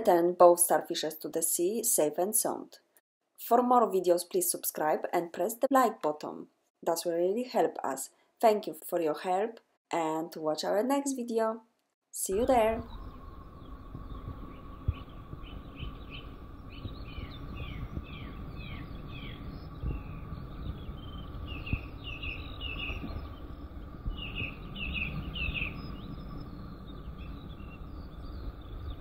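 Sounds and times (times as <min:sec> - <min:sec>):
faint steady hum: 0:12.2 - 0:29.0
small birds chirping: 0:12.2 - 0:29.0
low steady rumble: 0:12.3 - 0:29.0.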